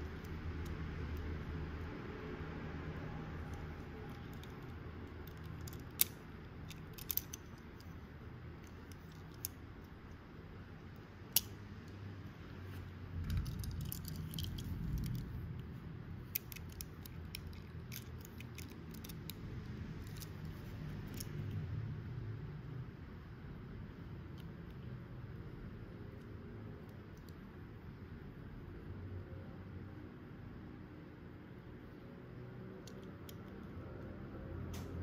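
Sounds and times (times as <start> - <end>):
faint low hum: 0.0 - 35.0
toy cars clicking and tapping: 3.4 - 7.9, 8.6 - 9.6, 13.2 - 15.2, 16.2 - 19.4, 20.0 - 21.5.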